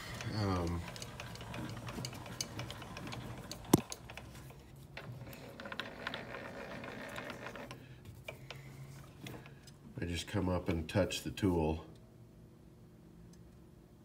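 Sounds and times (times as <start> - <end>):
handwheel mechanical clicks: 0.0 - 8.6.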